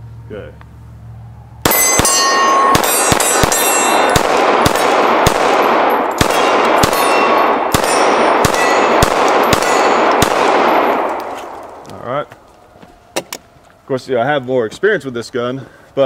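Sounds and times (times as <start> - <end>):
pistol shots: 1.6 - 11.8
steel targets clanging: 1.7 - 4.2.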